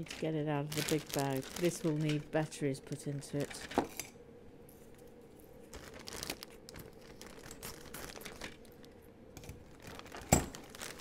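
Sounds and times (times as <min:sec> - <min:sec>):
plastic bag crinkling: 0:00.0 - 0:03.8, 0:05.3 - 0:11.0.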